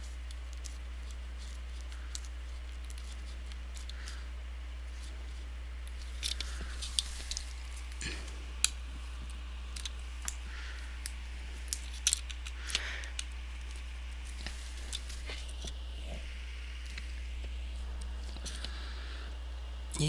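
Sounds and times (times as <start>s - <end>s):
soft rustling: 0.0s - 12.0s, 13.0s - 19.2s
plastic clips clicking: 11.0s - 13.8s.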